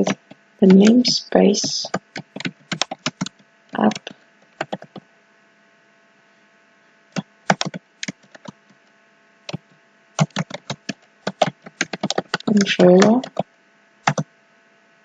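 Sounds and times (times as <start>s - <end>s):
computer keyboard typing: 0.0s - 5.0s, 7.2s - 8.6s, 10.2s - 13.5s, 14.1s - 14.3s
faint electrical hum: 0.0s - 15.0s.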